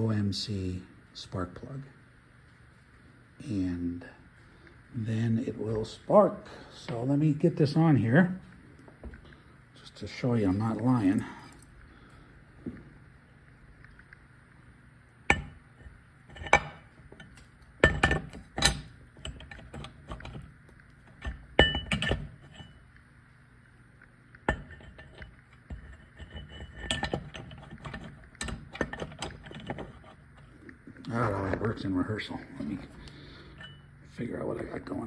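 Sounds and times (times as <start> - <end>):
metal clinks and knocks: 15.3 - 20.5, 21.1 - 22.8, 24.5 - 30.2.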